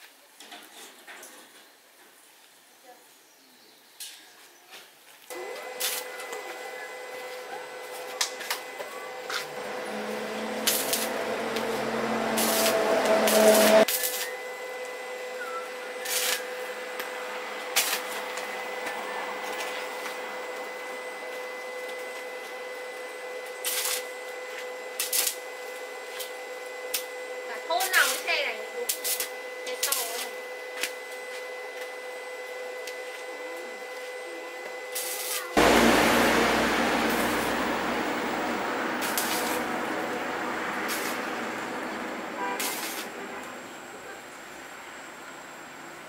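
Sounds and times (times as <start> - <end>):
steady machine hum: 5.3 - 33.2, 35.5 - 46.0
rising noise: 8.2 - 21.2, 35.6 - 44.0.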